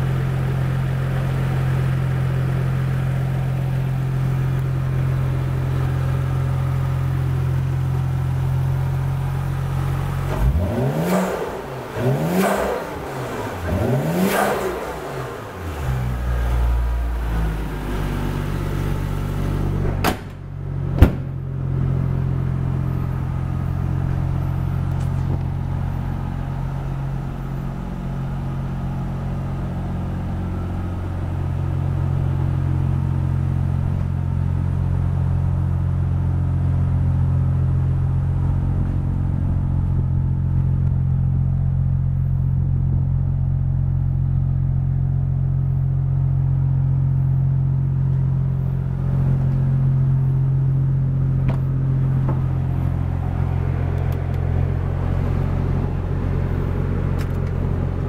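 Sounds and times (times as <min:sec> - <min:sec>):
car engine idling and revving: 0:00.0 - 0:58.0
sharp bang: 0:19.8 - 0:21.5.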